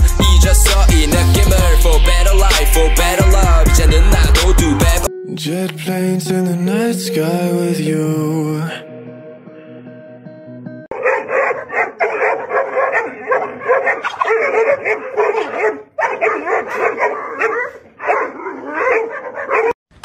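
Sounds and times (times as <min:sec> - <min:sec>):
dogs barking: 0:10.9 - 0:19.8
dogs yapping and whining: 0:10.9 - 0:19.8.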